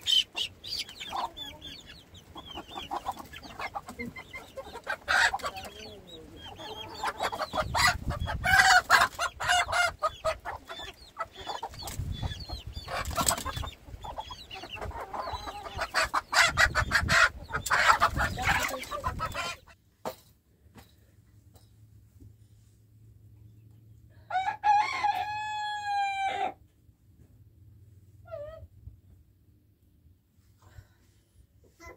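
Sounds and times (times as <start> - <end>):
chickens clucking: 0.0 - 19.8.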